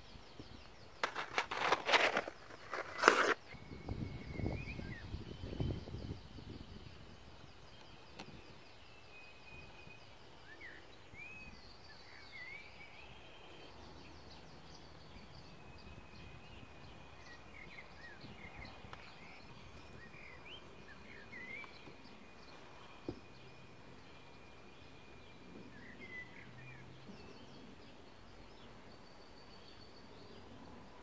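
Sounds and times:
small birds chirping and trilling: 0.0s - 31.0s.

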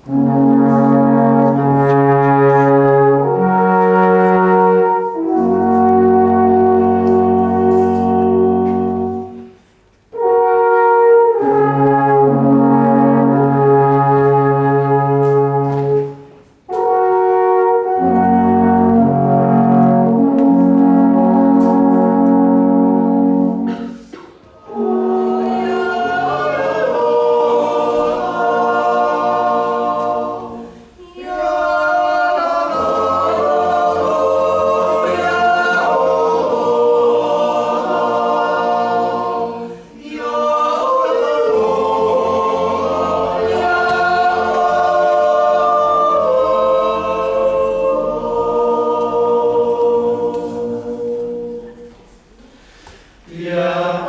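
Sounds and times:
choir singing unaccompanied: 0.0s - 9.6s, 10.2s - 23.9s, 24.5s - 52.2s, 53.2s - 54.0s
alphorns playing long notes: 16.8s - 23.7s, 24.6s - 52.0s.

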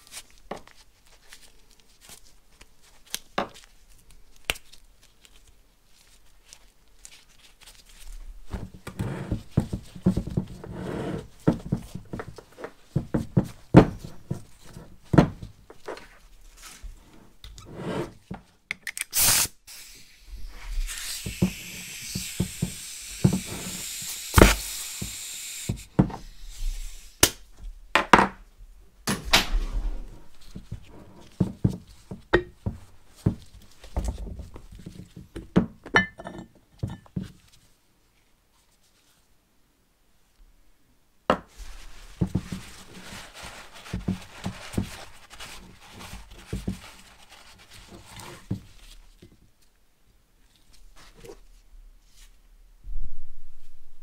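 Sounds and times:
knocks and clunks of handling: 8.5s - 10.6s
compressed air hissing: 19.2s - 27.2s.

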